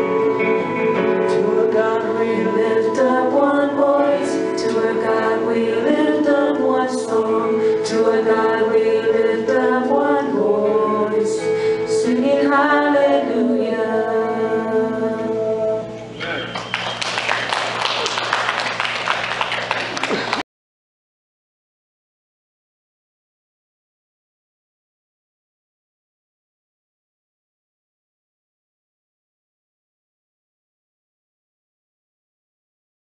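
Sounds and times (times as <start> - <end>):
group singing worship song: 0.0 - 16.0.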